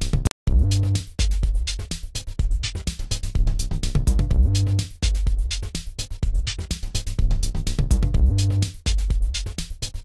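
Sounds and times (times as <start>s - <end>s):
deep bass notes: 0.0s - 1.6s, 3.4s - 5.6s, 7.2s - 9.2s
drum-machine beat: 0.0s - 10.0s.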